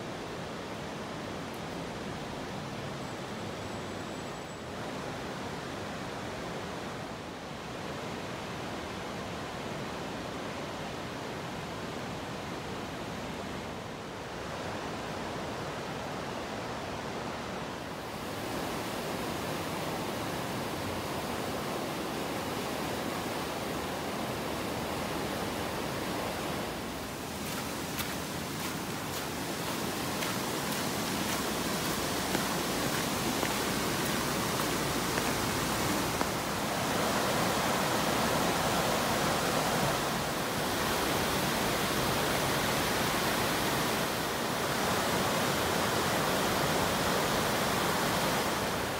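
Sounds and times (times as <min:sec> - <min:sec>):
river rushing over weir: 0:04.7 - 0:48.9
falling rain: 0:17.9 - 0:48.9.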